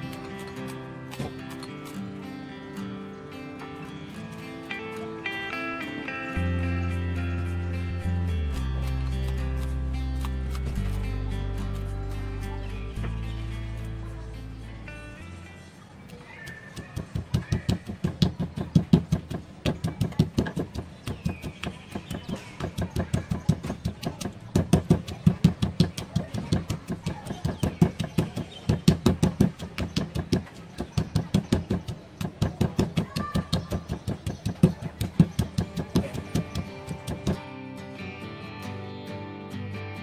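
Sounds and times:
stone pestle pounding in mortar: 16.5 - 37.4.

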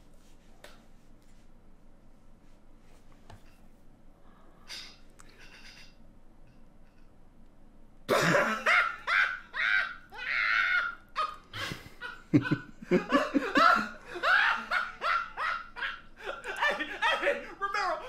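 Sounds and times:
man laughing loudly: 8.1 - 18.0.

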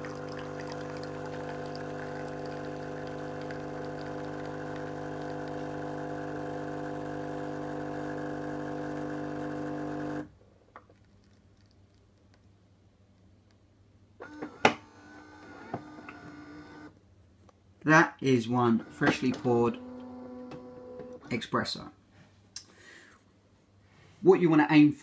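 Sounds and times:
espresso machine pump humming: 0.0 - 10.3, 18.8 - 21.2.

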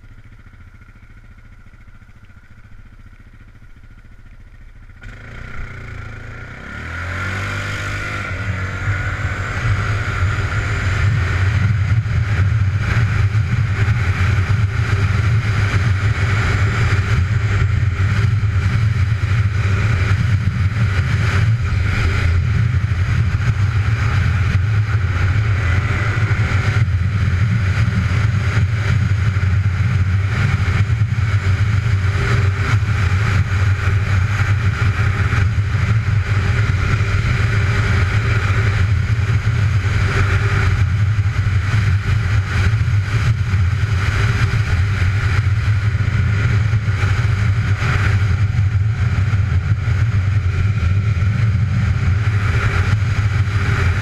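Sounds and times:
off-road vehicle engine running: 0.0 - 54.0.

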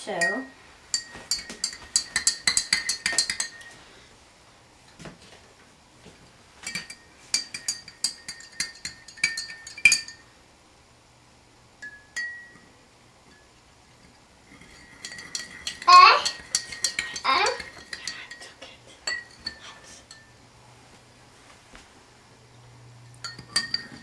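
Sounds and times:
spoon clinking in glass: 0.1 - 3.8, 6.6 - 10.2, 11.8 - 12.7, 14.5 - 20.4, 23.2 - 24.0.

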